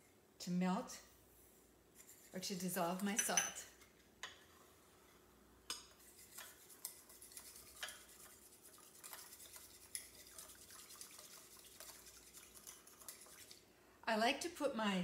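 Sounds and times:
spoon clinking ceramic bowl: 3.0s - 3.6s.

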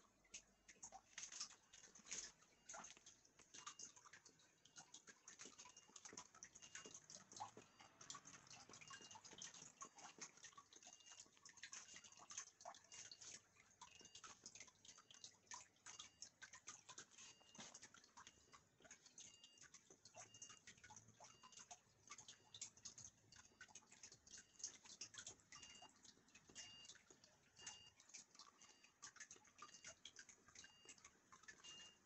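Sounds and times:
faint clicking and crackling: 0.0s - 32.0s
soft short beeps: 26.6s - 28.9s, 31.6s - 32.0s.

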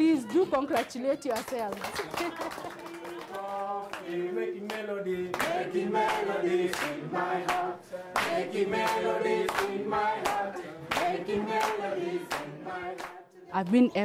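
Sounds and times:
hand claps: 0.7s - 13.8s
group of people singing: 2.9s - 14.0s.

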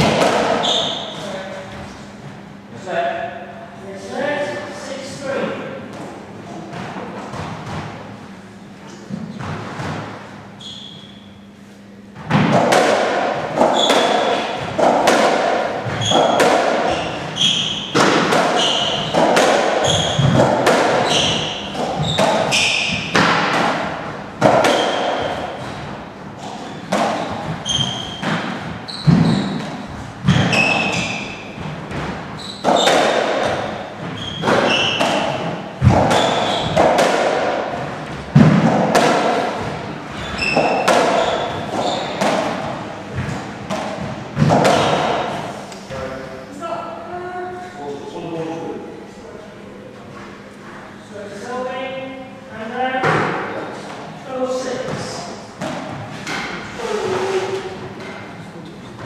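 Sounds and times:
ball hits echoing in court: 0.0s - 1.0s, 12.2s - 45.5s.

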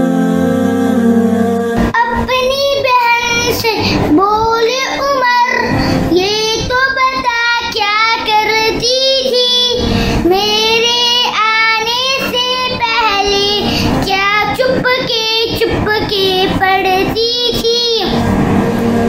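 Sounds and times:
boy singing devotional song: 0.0s - 18.2s
singer breathing: 5.7s - 6.1s, 9.8s - 10.2s, 13.6s - 14.0s.

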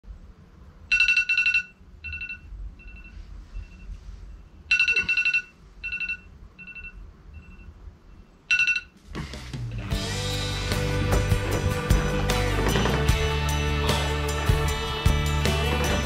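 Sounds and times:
electronic alarm beeping: 0.9s - 9.0s.

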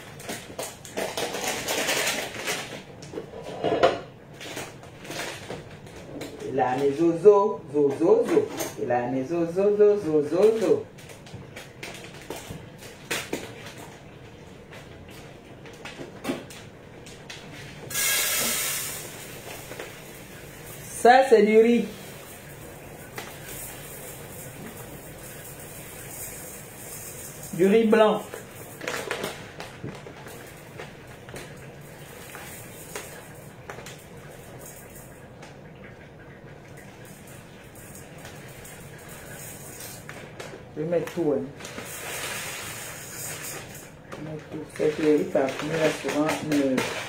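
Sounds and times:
loud rushing hiss: 17.9s - 19.3s.

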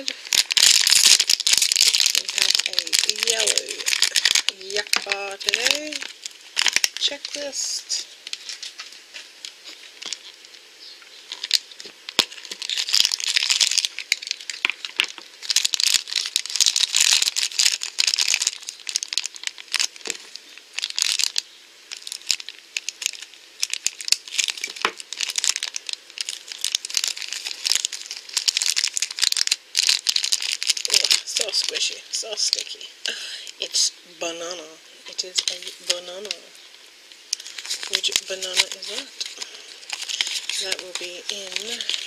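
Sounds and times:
crinkly wrapper being torn open: 0.0s - 7.4s, 8.2s - 32.8s, 35.1s - 42.0s.

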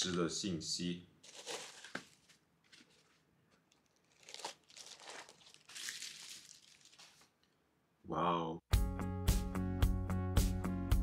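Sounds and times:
packaging crinkling: 1.2s - 7.5s.

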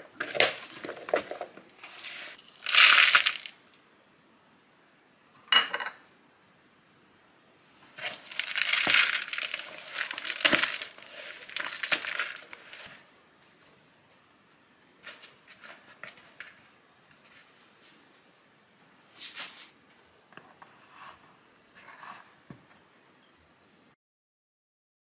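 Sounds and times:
crinkly rustling: 0.1s - 3.6s, 7.8s - 18.0s
hands kneading sticky dough: 7.9s - 13.8s.

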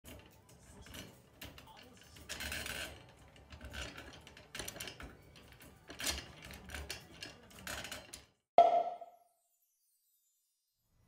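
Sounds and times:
wire crate rattling: 0.1s - 8.3s.

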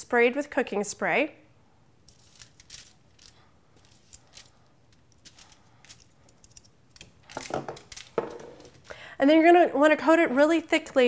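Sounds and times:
aluminium foil crinkling: 2.1s - 9.0s.

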